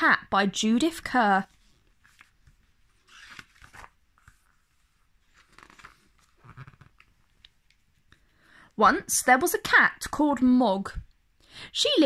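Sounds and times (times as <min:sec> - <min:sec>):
book pages turning: 0:01.4 - 0:08.2.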